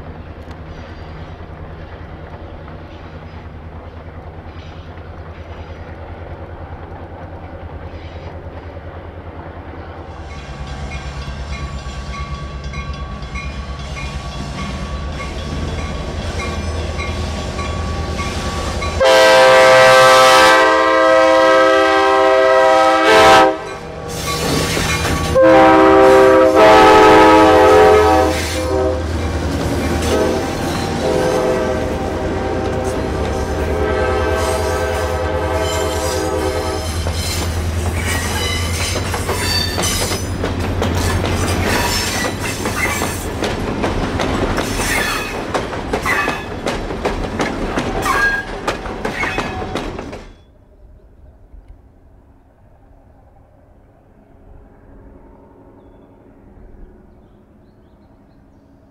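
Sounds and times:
locomotive engine drone: 0:00.0 - 0:49.0, 0:49.6 - 0:58.9
locomotive horn blasts: 0:18.7 - 0:24.2, 0:25.2 - 0:29.2, 0:29.8 - 0:37.2
train wheels clicking over rail joints: 0:23.6 - 0:25.4, 0:35.6 - 0:50.5.

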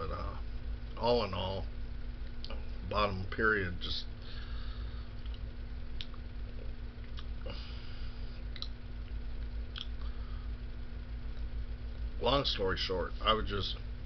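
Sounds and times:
low room hum: 0:00.0 - 0:14.0
mouth clicks and lip smacks: 0:05.2 - 0:06.2, 0:07.0 - 0:07.4, 0:08.5 - 0:10.0.

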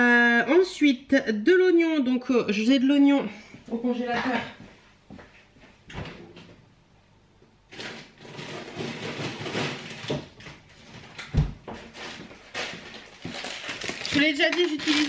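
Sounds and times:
frozen packets rustling and clattering: 0:07.7 - 0:15.0.

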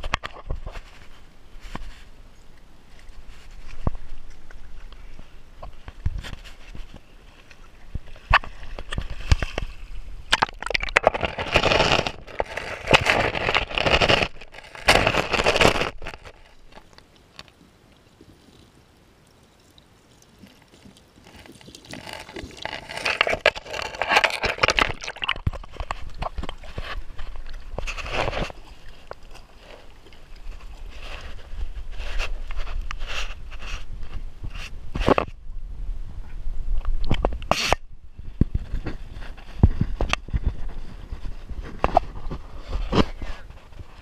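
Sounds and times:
water splashing in creek: 0:00.0 - 0:33.4.

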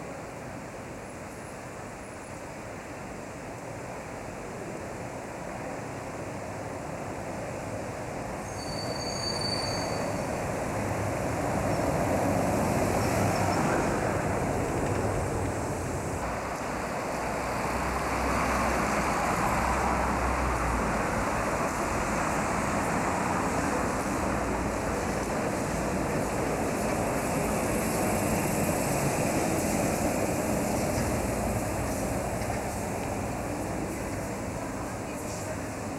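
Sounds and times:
traffic on a cobbled street: 0:00.0 - 0:35.9
trolleybus passing: 0:00.0 - 0:35.9
brief high whistle: 0:08.5 - 0:10.2.

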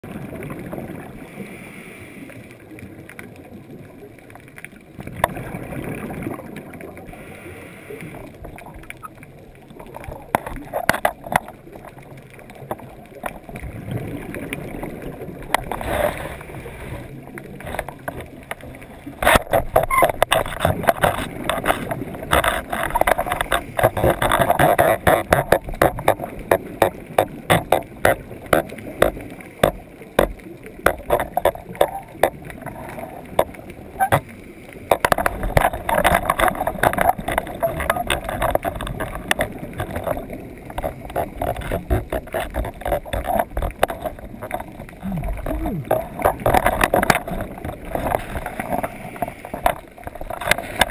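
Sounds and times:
regulator bubbles gurgling underwater: 0:00.0 - 0:50.9
sharp clicks and knocks: 0:09.8 - 0:13.5, 0:17.6 - 0:50.9.

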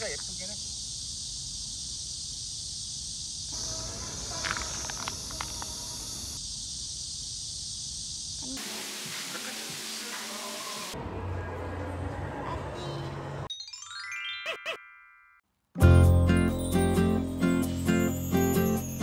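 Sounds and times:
insects chorus: 0:00.0 - 0:11.0
outdoor background noise: 0:00.0 - 0:13.5.

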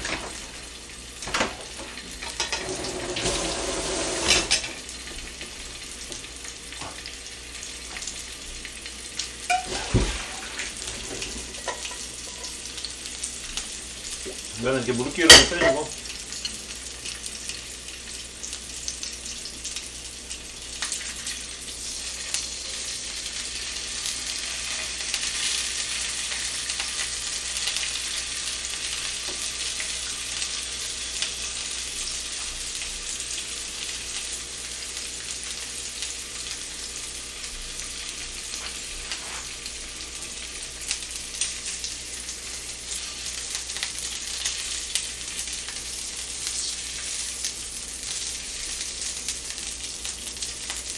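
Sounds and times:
sausages sizzling in a frying pan: 0:00.0 - 0:50.9.

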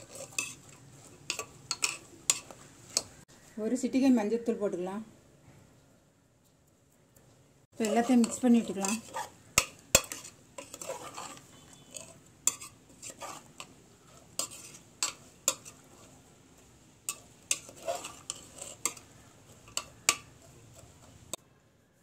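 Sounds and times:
metal ladle scraping a pot: 0:00.0 - 0:03.2, 0:07.8 - 0:16.2, 0:17.1 - 0:21.4.

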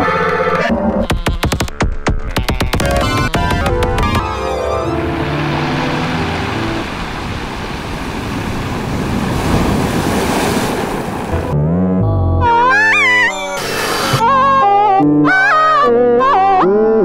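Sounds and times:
gliding warbling tones: 0:04.0 - 0:07.6
loud rushing noise: 0:04.4 - 0:11.6.

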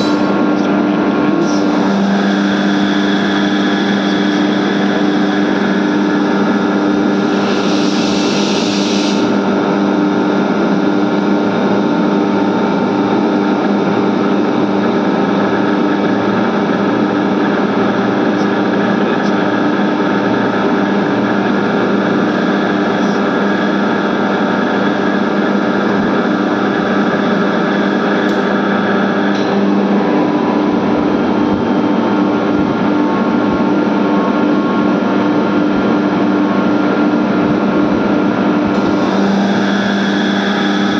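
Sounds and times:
air compressor humming: 0:00.0 - 0:40.9.

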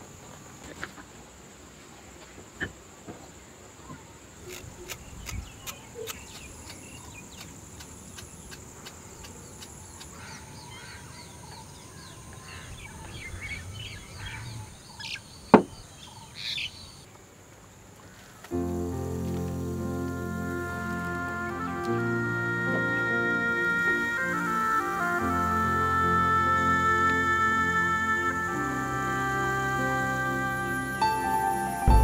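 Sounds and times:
birds chirping: 0:03.8 - 0:17.1.

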